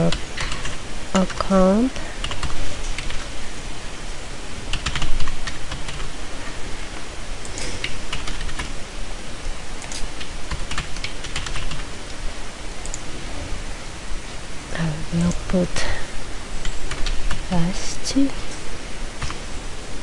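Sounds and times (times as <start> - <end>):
computer keyboard typing: 0.0 - 1.3, 2.2 - 3.3, 4.7 - 6.1, 7.5 - 8.7, 9.8 - 11.8, 16.6 - 17.4
steady background hiss: 0.0 - 20.0.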